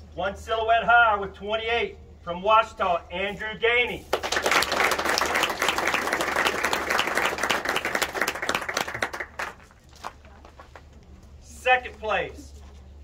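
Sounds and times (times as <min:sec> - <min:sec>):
people applauding: 0:04.1 - 0:10.2.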